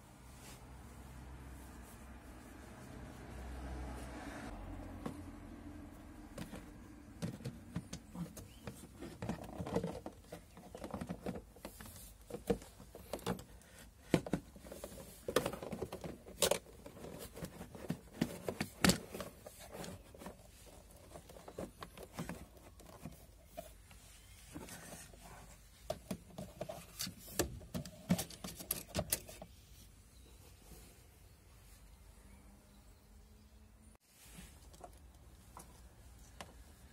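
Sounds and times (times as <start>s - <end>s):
plastic scraping on plastic: 6.3s - 29.6s.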